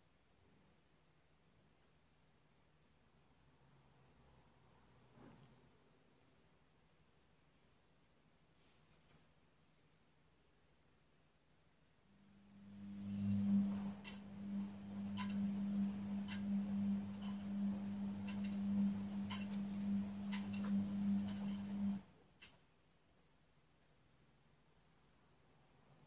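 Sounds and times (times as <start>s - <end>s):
low electric hum: 10.3s - 24.4s.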